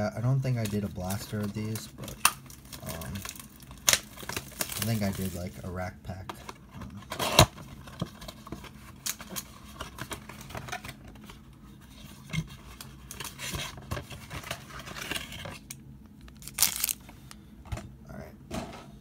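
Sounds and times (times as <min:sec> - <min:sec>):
plastic wrap crinkling: 0:00.5 - 0:05.8, 0:14.2 - 0:17.1
cardboard ripping: 0:16.4 - 0:17.0.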